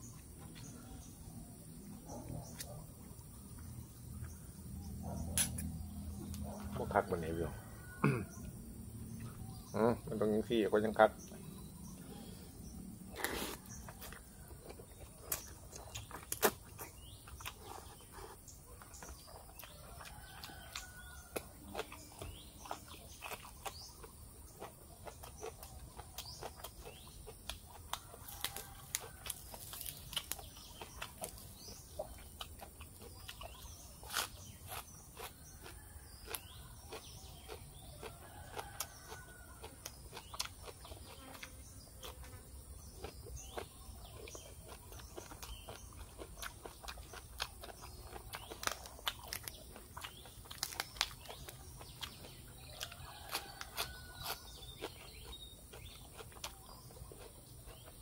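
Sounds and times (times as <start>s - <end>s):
slurping noodles: 13.1s - 13.8s
chewing with mouth clicks: 13.1s - 58.0s.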